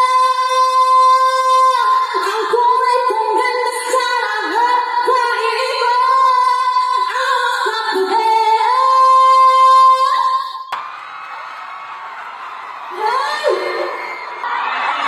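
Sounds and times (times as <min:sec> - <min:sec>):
woman singing through sound system: 0:00.0 - 0:10.7, 0:12.9 - 0:14.1.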